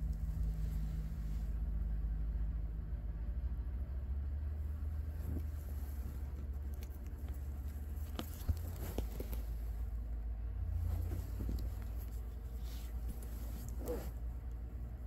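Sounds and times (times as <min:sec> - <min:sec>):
steady low hum: 0:00.0 - 0:15.0
papery rustle: 0:05.2 - 0:09.8.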